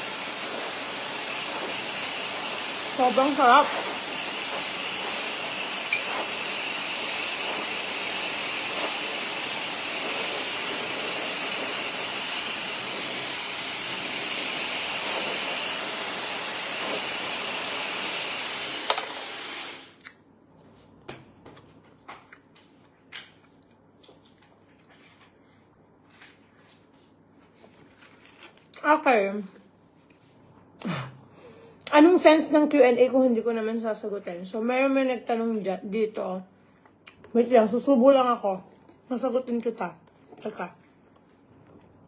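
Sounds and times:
hair dryer running: 0:00.0 - 0:20.0.

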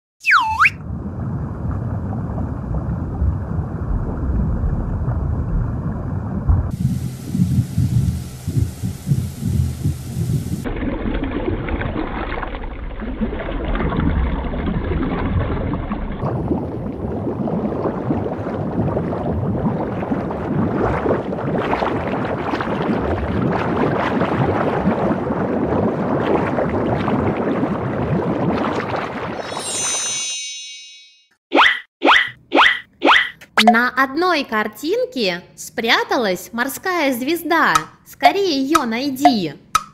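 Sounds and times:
underwater rumbling and gurgling: 0:00.8 - 0:29.4.

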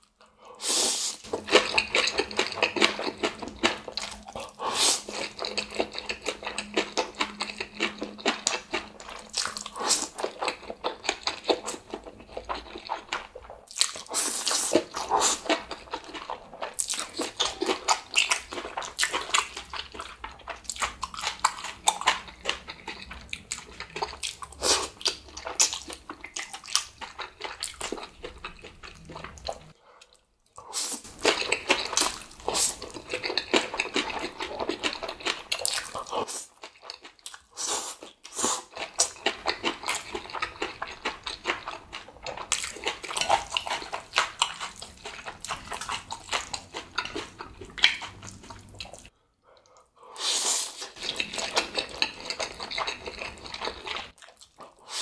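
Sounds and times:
person slurping and chewing noodles: 0:00.0 - 0:55.0.

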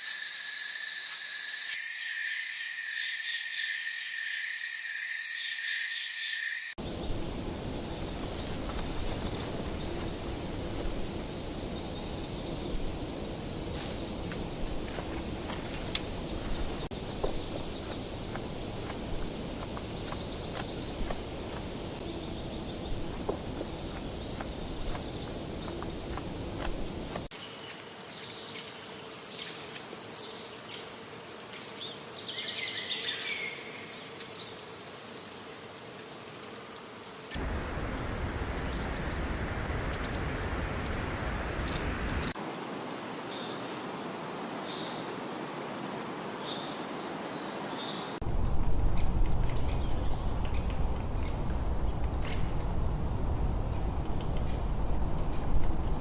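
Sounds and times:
steady background hiss: 0:06.8 - 0:56.0
birds chirping and whistling: 0:37.4 - 0:42.4.

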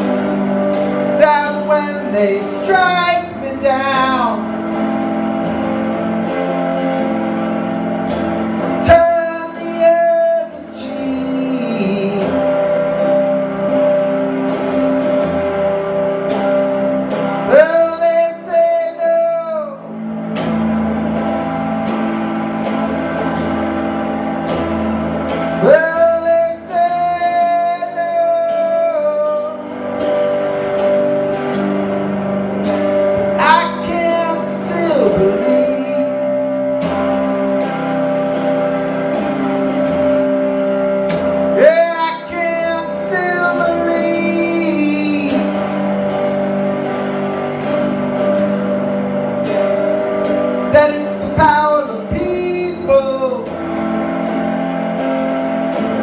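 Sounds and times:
guitar chords ringing: 0:00.0 - 0:56.0
man singing long notes: 0:01.1 - 0:04.7, 0:08.7 - 0:12.9, 0:17.5 - 0:20.0, 0:25.5 - 0:29.8, 0:33.2 - 0:36.7, 0:41.5 - 0:45.9, 0:50.6 - 0:54.0.

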